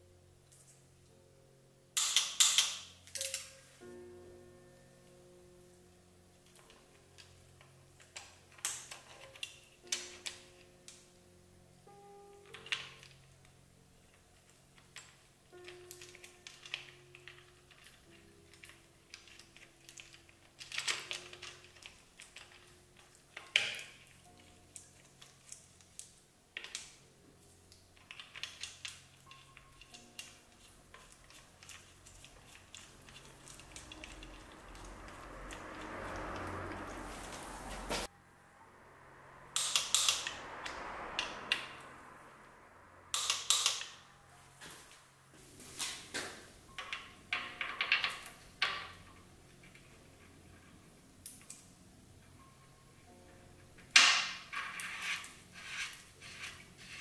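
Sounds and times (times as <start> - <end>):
hand tool clicking on metal: 2.0 - 3.5
timing chain clicking and rattling: 28.0 - 37.2.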